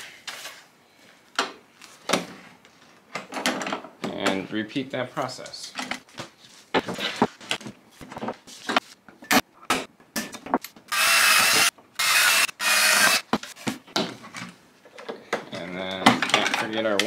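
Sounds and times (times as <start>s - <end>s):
cordless drill boring plywood: 10.9s - 13.3s.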